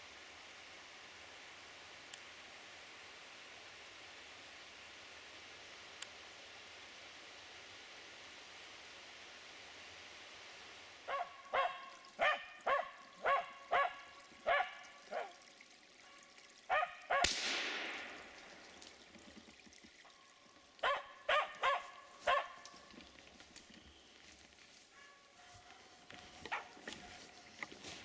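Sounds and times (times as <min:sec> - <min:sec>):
dog barking sharply: 0:11.1 - 0:15.3, 0:16.7 - 0:17.4, 0:20.8 - 0:22.6
loud bang with echo: 0:17.3 - 0:18.3.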